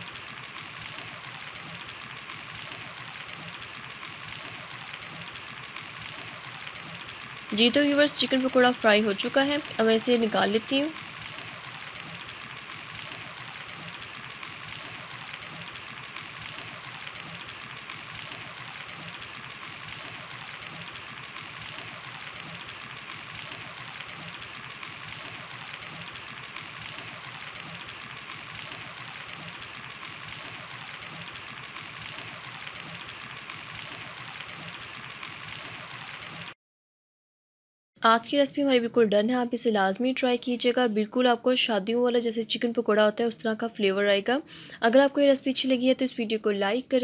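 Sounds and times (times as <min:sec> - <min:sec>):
hot oil sizzling and bubbling: 0:00.0 - 0:36.6.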